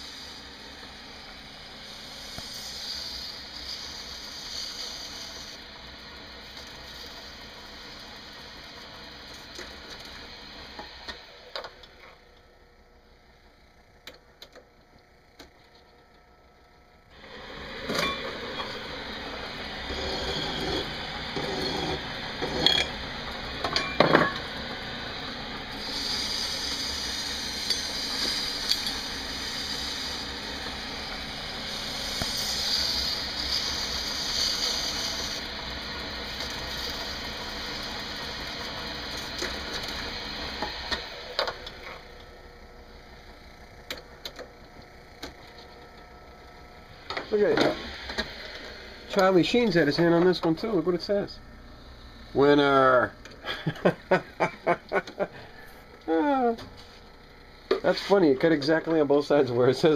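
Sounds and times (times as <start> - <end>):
lathe running: 0.0 - 13.2, 16.2 - 59.9
metal scraping and hissing: 1.9 - 5.6, 25.7 - 30.3, 31.3 - 35.4, 57.8 - 58.4.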